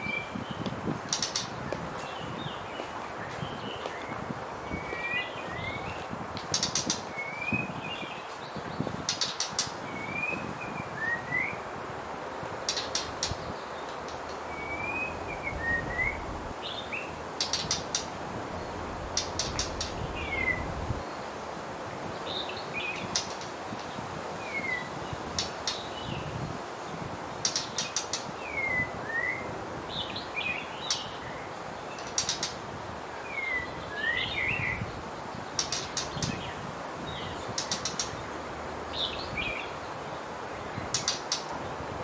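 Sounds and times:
background hiss: 0:00.0 - 0:42.0
bird sharp clicking notes: 0:01.1 - 0:01.6, 0:06.4 - 0:07.1, 0:09.0 - 0:09.8, 0:12.7 - 0:16.3, 0:17.4 - 0:18.2, 0:19.0 - 0:20.7, 0:27.4 - 0:28.3, 0:32.0 - 0:32.6, 0:35.6 - 0:36.4, 0:37.5 - 0:38.1, 0:40.9 - 0:41.6
bird whistling calls: 0:10.0 - 0:11.6, 0:14.4 - 0:18.0.

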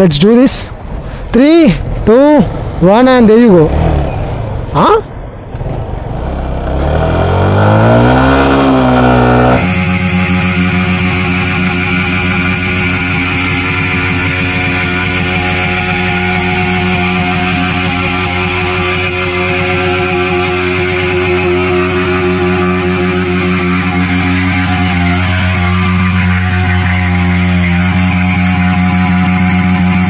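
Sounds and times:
rock music with electric guitar: 0:09.3 - 0:30.0.

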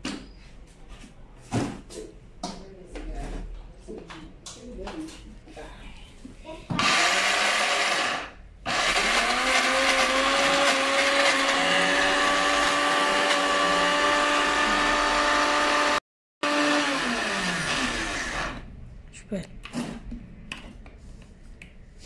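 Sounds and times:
blender grinding: 0:06.8 - 0:18.7.

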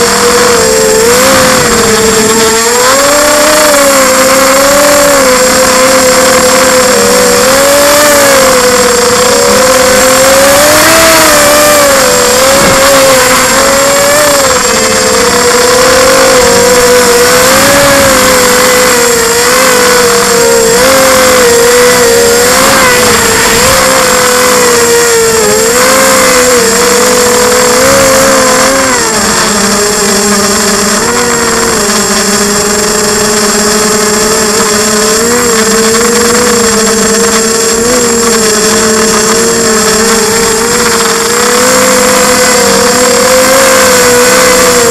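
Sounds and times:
quadcopter motors whining: 0:00.0 - 0:44.9.

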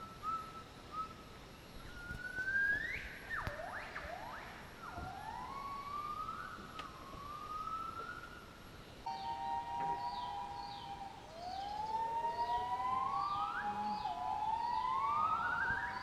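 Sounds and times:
gibbon whooping call: 0:09.1 - 0:16.0.

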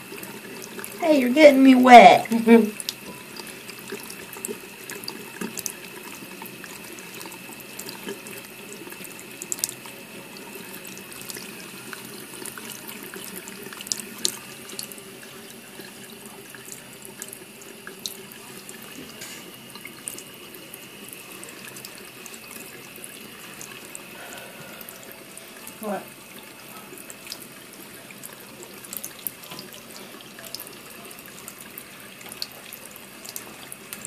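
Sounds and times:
tap water running into sink: 0:00.0 - 0:34.0
cat lapping water: 0:02.1 - 0:19.0.

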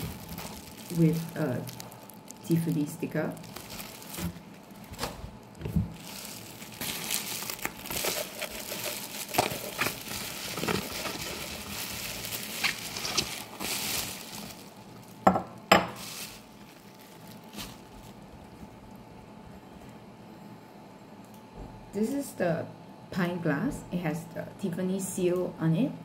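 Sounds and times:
bubble wrap crinkling: 0:00.0 - 0:19.1.

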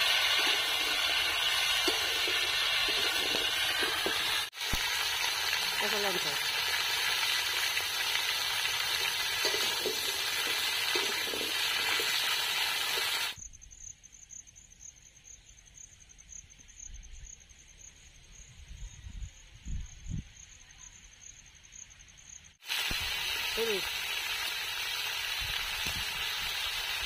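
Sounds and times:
vegetables sizzling in hot oil: 0:00.0 - 0:13.4, 0:22.6 - 0:27.0
wind rumble on microphone: 0:18.4 - 0:20.4.

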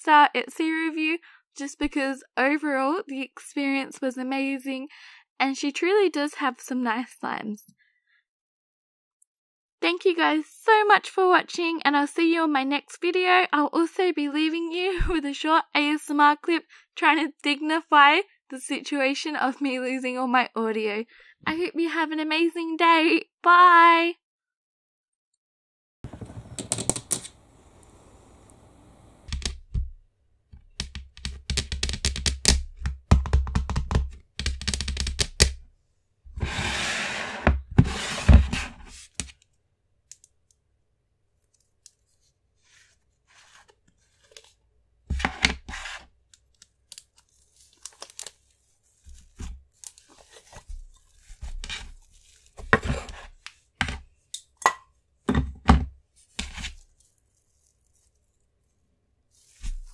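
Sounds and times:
rustling: 0:56.2 - 0:59.9.

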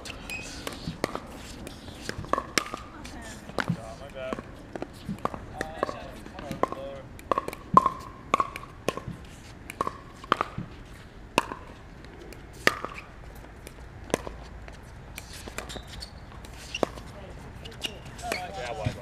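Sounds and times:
ball bouncing on hard court: 0:00.1 - 0:10.8, 0:11.4 - 0:11.8, 0:12.5 - 0:14.4, 0:15.2 - 0:17.1.

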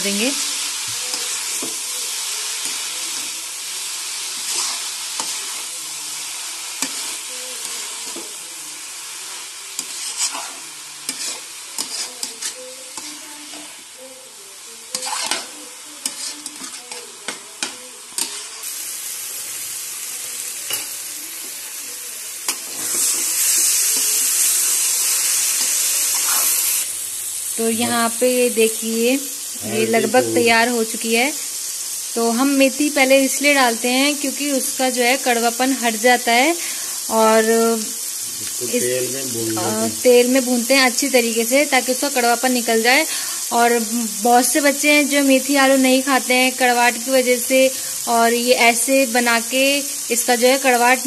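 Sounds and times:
greens sizzling in oil: 0:00.0 - 0:51.0
spatula scraping and tapping pan: 0:04.4 - 0:05.6, 0:06.8 - 0:08.4, 0:09.8 - 0:13.7, 0:14.9 - 0:18.6, 0:20.7 - 0:21.0.

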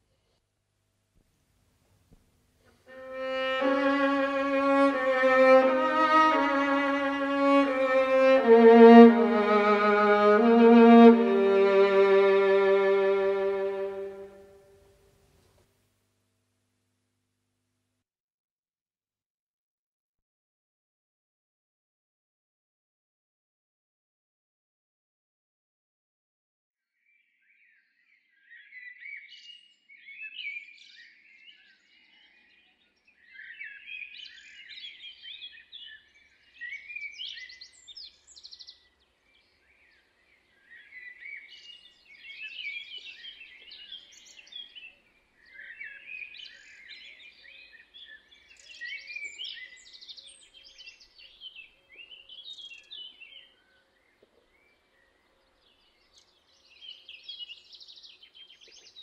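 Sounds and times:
songbirds singing: 0:27.0 - 0:59.0.

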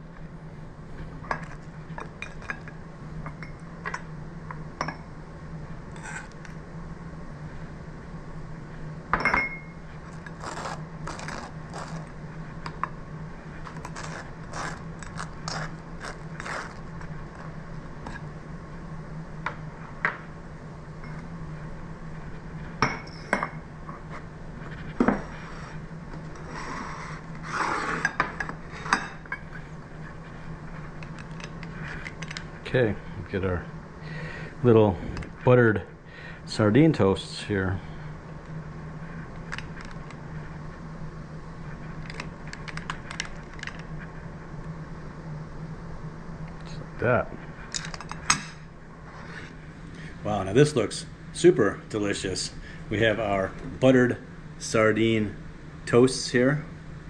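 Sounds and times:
steady low hum: 0:00.0 - 0:57.0
knife scraping butter on toast: 0:10.1 - 0:12.2, 0:13.6 - 0:17.5.

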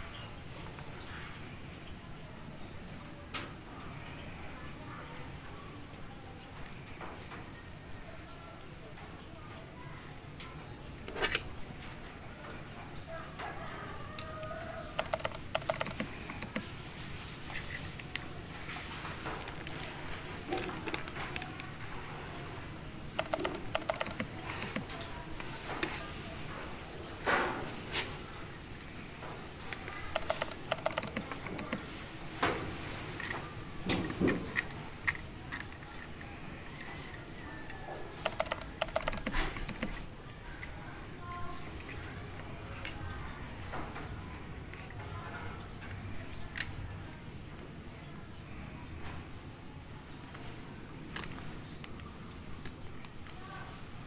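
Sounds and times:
hard plastic parts clicking: 0:23.2 - 0:25.1, 0:30.1 - 0:31.8.

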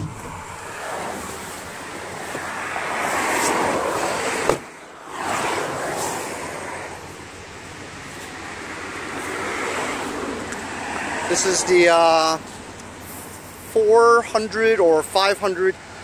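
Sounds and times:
wind on microphone: 0:00.0 - 0:04.6
passing road traffic: 0:00.0 - 0:16.0
van door opening click: 0:04.4 - 0:04.7.

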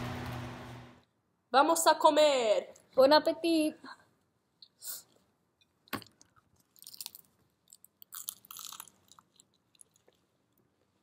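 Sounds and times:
people chewing crunchy food: 0:06.0 - 0:10.9.

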